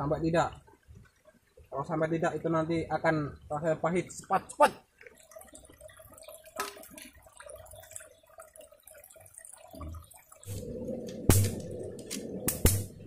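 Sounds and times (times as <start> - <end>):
stream trickling over rocks: 0.0 - 13.0
sharp knock: 11.3 - 11.6, 12.5 - 13.0.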